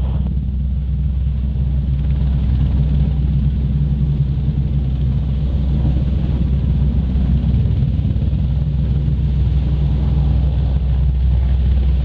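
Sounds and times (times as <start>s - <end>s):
helicopter hovering: 0.0s - 12.0s.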